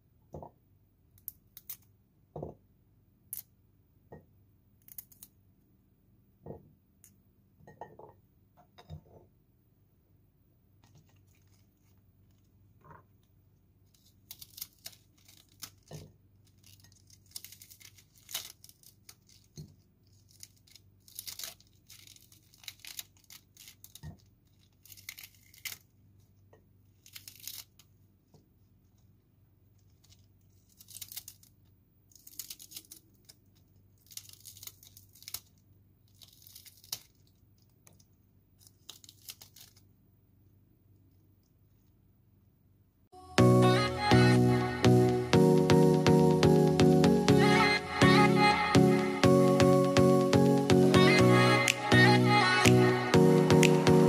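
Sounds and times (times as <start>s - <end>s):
lettuce leaves crackling snaps: 13.9s - 25.9s, 27.0s - 27.9s, 30.0s - 39.9s.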